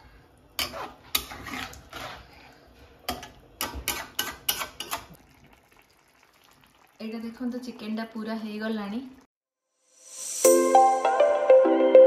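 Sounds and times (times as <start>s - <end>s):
metal spatula scraping frying pan: 0.6s - 5.2s.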